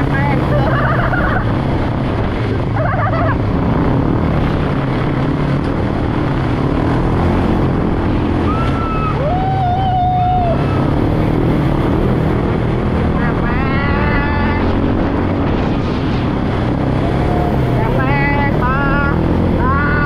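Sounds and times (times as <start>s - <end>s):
engine running: 0.0s - 20.0s
wind noise on microphone: 0.0s - 20.0s.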